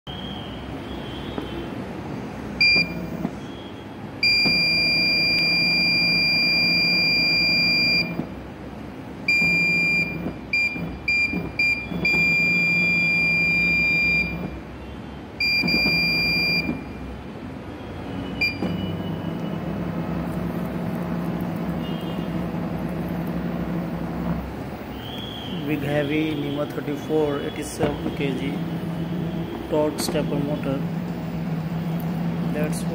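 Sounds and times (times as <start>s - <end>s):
stepper motor whine: 18.2s - 25.6s, 27.8s - 32.9s.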